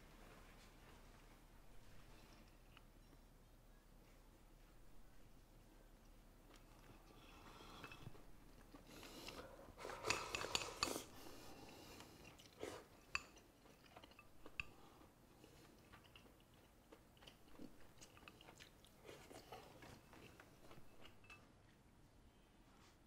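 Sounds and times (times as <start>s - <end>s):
faint chewing: 1.7s - 3.3s, 4.0s - 21.9s
chopsticks clicking against bowl: 10.0s - 11.0s.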